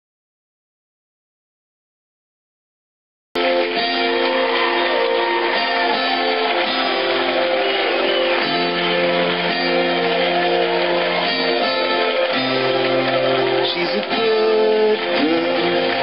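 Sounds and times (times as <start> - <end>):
background music with sustained chords: 3.4 - 16.0.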